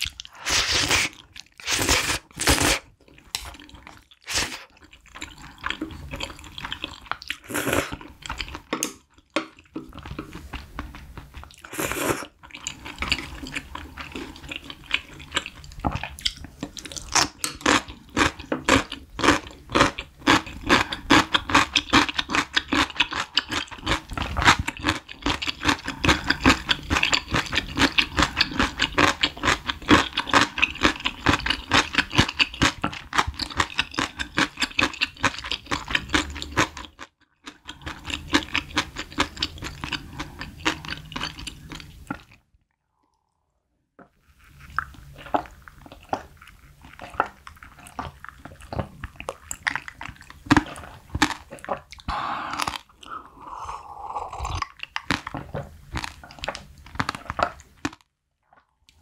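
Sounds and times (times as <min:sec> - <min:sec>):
wet chewing mouth clicks: 0:00.0 - 0:19.0, 0:44.4 - 0:59.0.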